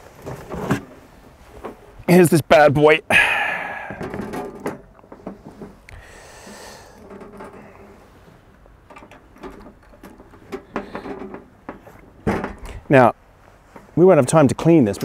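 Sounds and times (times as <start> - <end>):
metal barbecue lid clicks and knocks: 8.9 - 12.8.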